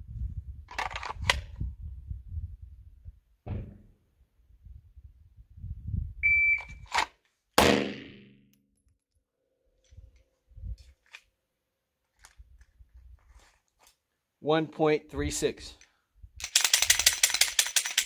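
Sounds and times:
shot timer beep: 6.2 - 6.8
handgun shot: 7.6 - 8.3.

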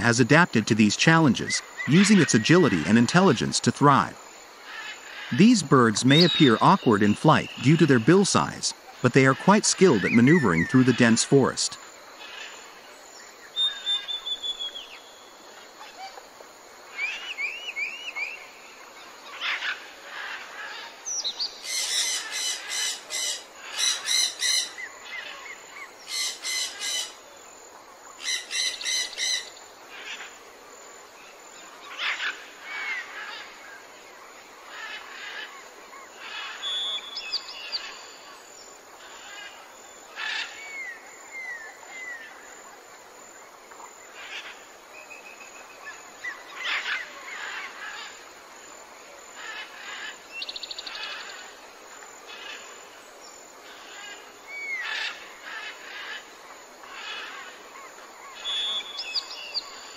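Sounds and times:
bird rapid repeated notes: 0.0 - 4.2, 5.3 - 11.8
birds chirping: 0.0 - 16.1, 31.3 - 42.5, 49.4 - 59.9
faint background hiss: 0.0 - 59.9.

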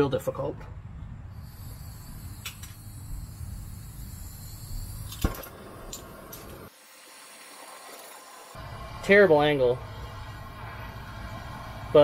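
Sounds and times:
torch flame hissing: 1.3 - 12.0
torch lighter click: 1.7 - 6.6.

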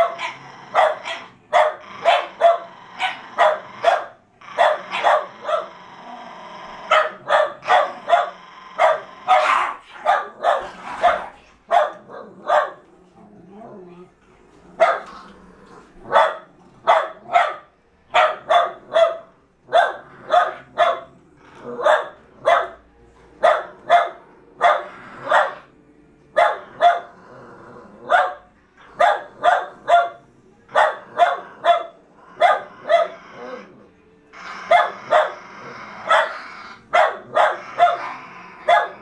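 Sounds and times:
dog barking: 0.0 - 5.8, 6.9 - 12.8, 14.8 - 15.1, 16.0 - 21.1, 21.7 - 22.8, 23.4 - 25.7, 26.4 - 27.1, 28.0 - 33.2, 34.6 - 35.4, 36.0 - 39.0.

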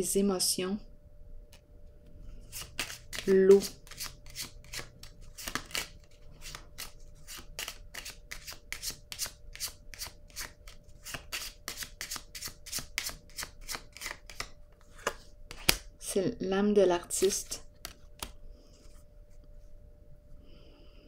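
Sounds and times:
cards being shuffled: 2.4 - 15.9, 17.2 - 19.0.

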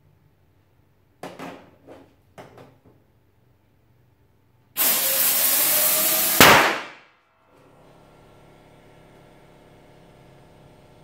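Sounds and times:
compressed air hissing: 4.8 - 6.8
balloon popping: 6.4 - 7.0.

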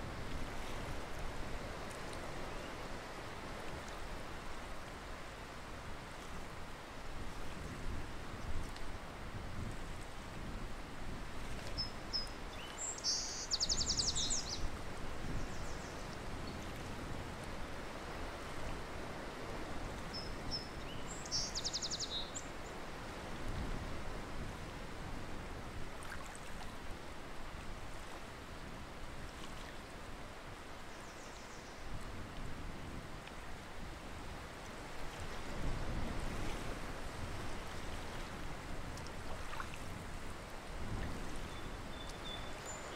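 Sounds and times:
songbird trill: 11.8 - 14.7, 20.1 - 22.7, 41.4 - 42.9.

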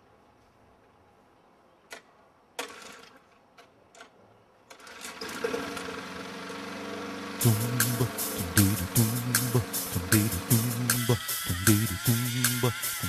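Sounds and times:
lawnmower motor running: 4.7 - 13.0.

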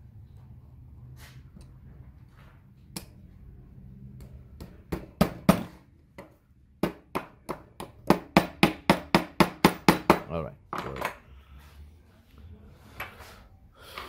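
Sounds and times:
hammer tapping nail into wood: 4.2 - 10.3.

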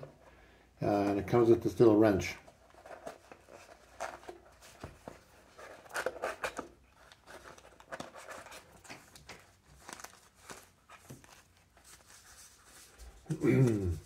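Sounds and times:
hands handling a box: 2.4 - 14.0.

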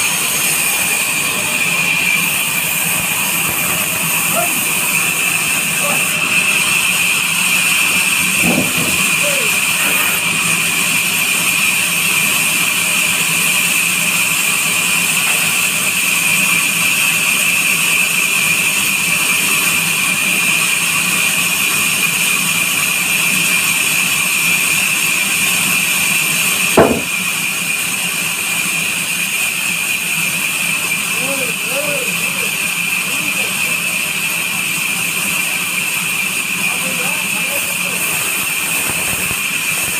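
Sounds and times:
band saw cutting log: 0.0 - 39.9
sharp knock: 26.8 - 27.2.

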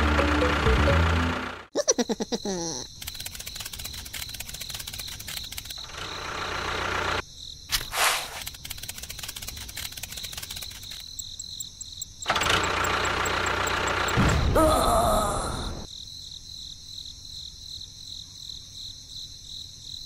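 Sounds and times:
small motor clicking buzz and whine: 2.9 - 7.2, 8.3 - 14.2.

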